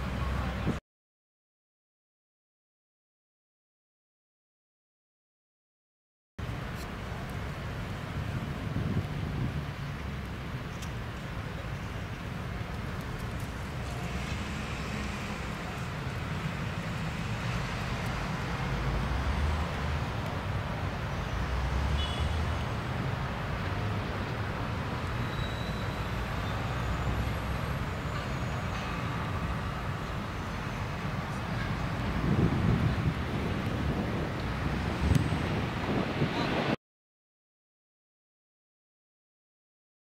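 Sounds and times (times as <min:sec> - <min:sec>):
road traffic: 0:00.0 - 0:00.8, 0:06.4 - 0:36.8
wind rumbling on microphone: 0:06.4 - 0:21.7, 0:29.2 - 0:36.8.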